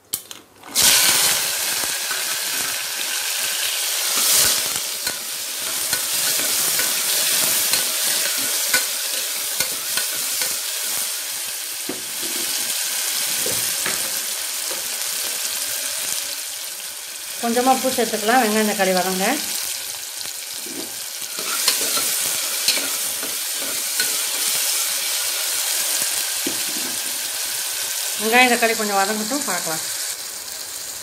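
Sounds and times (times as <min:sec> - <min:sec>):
vegetables sizzling in hot oil: 0:00.6 - 0:31.0
metal ladle scraping pot: 0:04.1 - 0:10.6, 0:20.6 - 0:24.5.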